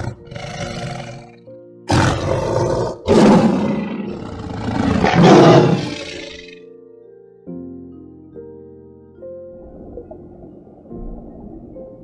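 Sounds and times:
tiger growling and roaring: 0:00.0 - 0:06.6
background music: 0:00.0 - 0:12.0.

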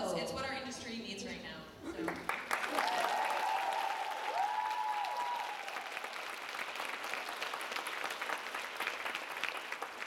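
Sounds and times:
audience applauding: 0:02.0 - 0:10.0
high held cheer: 0:02.5 - 0:06.5.

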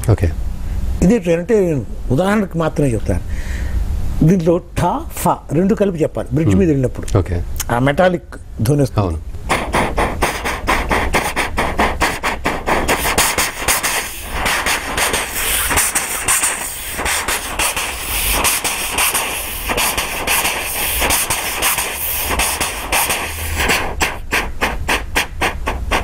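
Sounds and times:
vocal steam hiss: 0:09.5 - 0:26.0
vocal train clatter mimicry: 0:09.5 - 0:26.0.

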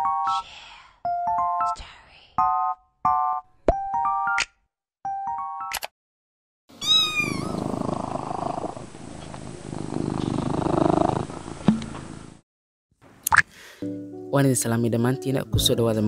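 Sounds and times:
cat meowing: 0:06.7 - 0:07.8
cat purring: 0:06.9 - 0:12.3.

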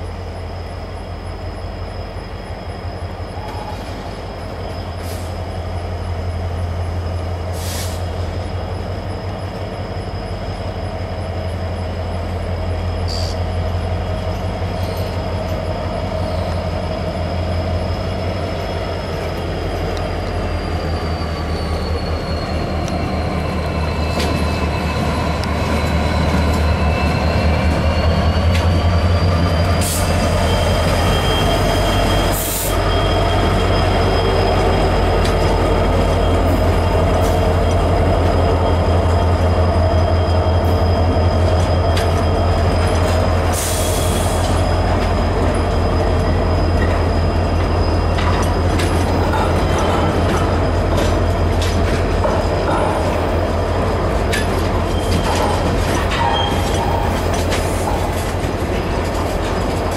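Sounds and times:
diesel locomotive engine rumble: 0:00.0 - 0:59.9
high-pitched wheel squeal: 0:01.5 - 0:59.9
wheels clacking over rails: 0:46.1 - 0:59.9.

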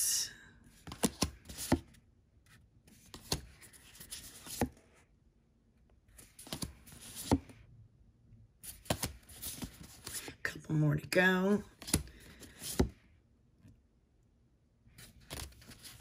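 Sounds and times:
soft rustling of cards: 0:00.7 - 0:05.2, 0:05.9 - 0:07.7, 0:08.6 - 0:10.6, 0:11.2 - 0:13.8, 0:14.9 - 0:16.0.

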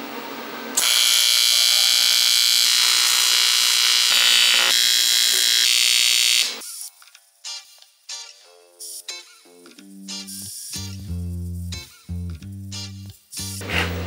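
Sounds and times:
arc welding buzzing hiss: 0:00.8 - 0:06.9
background music: 0:06.6 - 0:14.0.

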